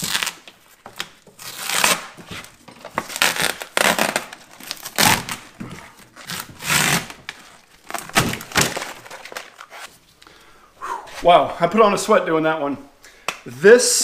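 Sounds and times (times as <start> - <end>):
plastic film tearing: 0.0 - 9.9
plastic crinkling: 0.0 - 10.3.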